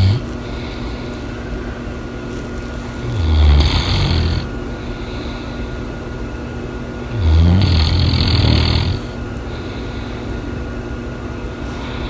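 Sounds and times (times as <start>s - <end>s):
dog snoring: 0.0s - 0.8s, 3.0s - 5.4s, 7.0s - 9.7s.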